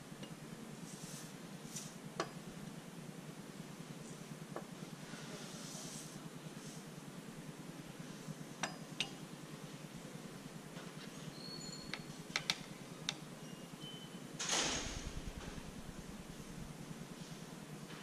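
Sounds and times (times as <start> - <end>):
low steady hum: 0.0 - 18.0
rustle and scrape: 0.8 - 2.0, 5.0 - 6.9.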